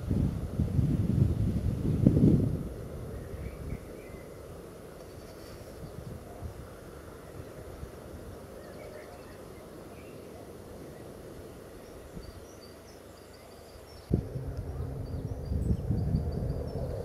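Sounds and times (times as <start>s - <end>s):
low steady hum: 0.0s - 17.0s
faint bird chirps: 8.5s - 17.0s
low rumble: 14.1s - 17.0s.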